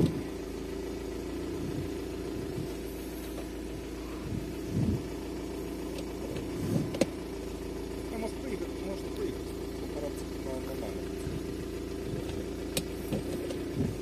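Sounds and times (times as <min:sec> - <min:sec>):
car engine idling: 0:00.0 - 0:14.0
short low thumps: 0:01.4 - 0:07.2, 0:11.1 - 0:14.0.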